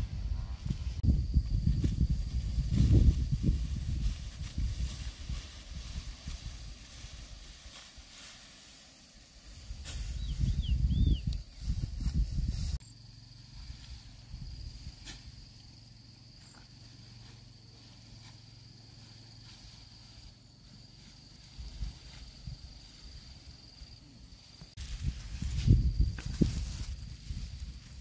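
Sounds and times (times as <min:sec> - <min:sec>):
high-pitched insect call: 0:00.7 - 0:28.0
soft rustles: 0:24.5 - 0:28.0.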